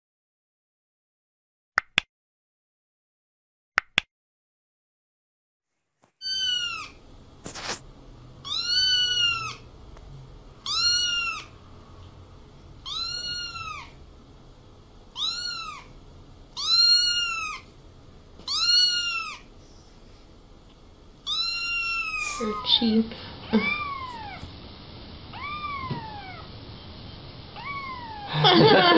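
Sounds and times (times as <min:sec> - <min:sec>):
kitten meowing: 0:06.2 - 0:07.0, 0:08.4 - 0:09.6, 0:10.6 - 0:11.5, 0:12.8 - 0:14.0, 0:15.2 - 0:15.9, 0:16.6 - 0:17.6, 0:18.4 - 0:19.4, 0:21.2 - 0:22.9, 0:23.5 - 0:24.5, 0:25.3 - 0:26.4, 0:27.6 - 0:28.3.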